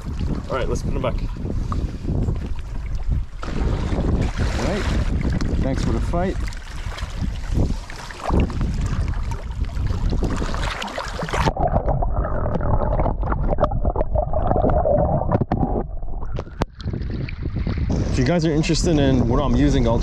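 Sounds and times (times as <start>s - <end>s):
wind on microphone: 0.0s - 20.0s
lake water sloshing at shoreline: 2.4s - 11.5s
muffled underwater bubbling: 7.2s - 17.9s.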